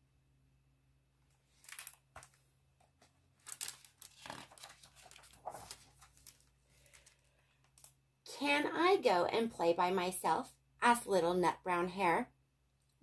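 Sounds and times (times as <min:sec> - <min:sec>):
book pages rustling: 0:01.3 - 0:08.0.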